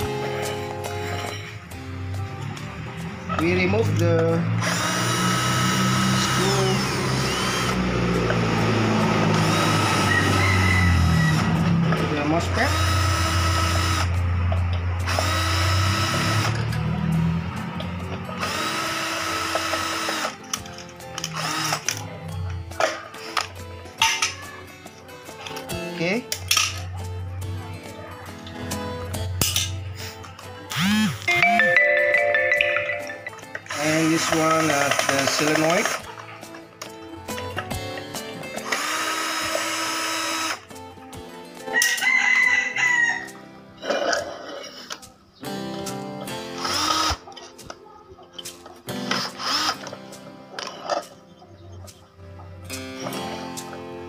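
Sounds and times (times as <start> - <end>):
rooster crowing: 9.8 - 11.5, 41.8 - 43.4.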